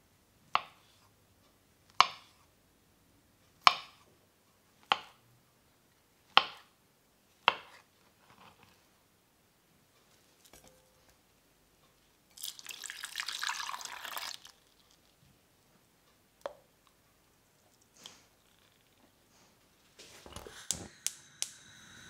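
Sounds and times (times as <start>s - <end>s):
milk pouring into saucepan: 12.3s - 15.2s.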